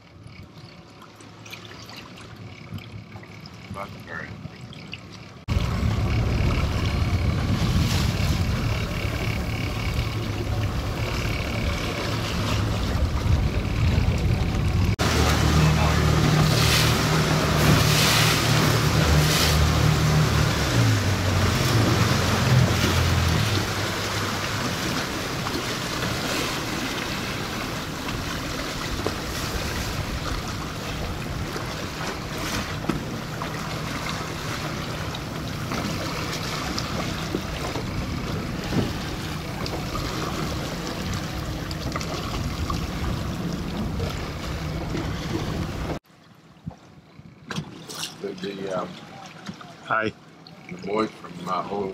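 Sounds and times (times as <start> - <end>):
motorboat engine running: 0.0 - 51.9
water noise: 0.0 - 51.9
wind: 0.0 - 51.9.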